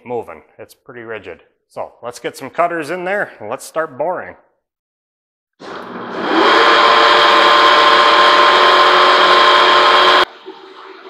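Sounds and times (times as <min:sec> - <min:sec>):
boring mill motor whining: 0:05.6 - 0:10.3.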